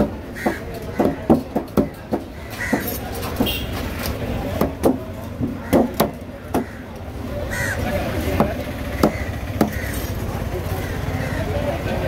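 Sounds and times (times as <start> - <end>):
knife chopping fish on wood: 0.0 - 3.6, 4.5 - 6.7, 8.4 - 9.8.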